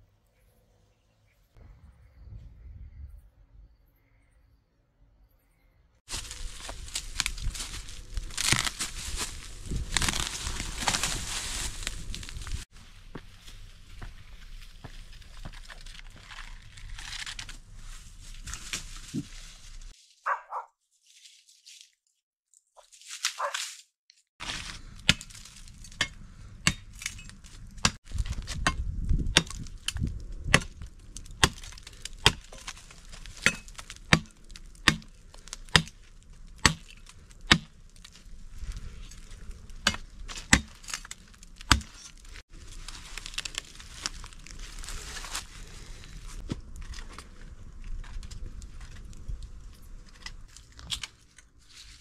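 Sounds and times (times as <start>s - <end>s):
wooden branch being chopped: 6.1s - 12.6s, 24.4s - 38.2s, 39.8s - 42.2s
footsteps on dry leaves: 6.1s - 22.0s, 22.8s - 52.0s.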